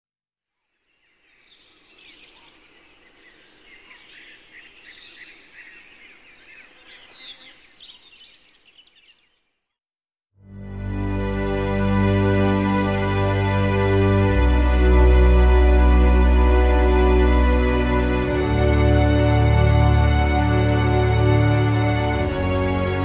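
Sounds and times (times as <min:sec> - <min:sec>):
birds chirping: 0:00.7 - 0:09.8
background music: 0:10.4 - 0:23.0.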